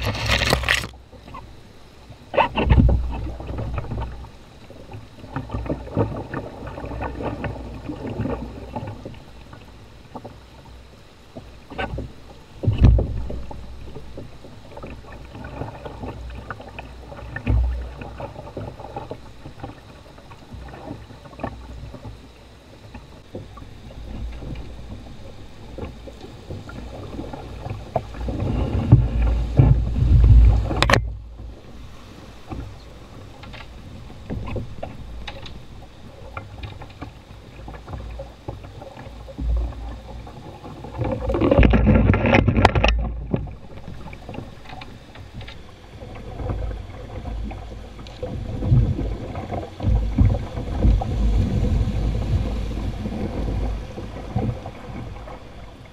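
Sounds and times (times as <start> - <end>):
pole clacking on stony bottom: 0.0 - 1.0, 41.1 - 43.5.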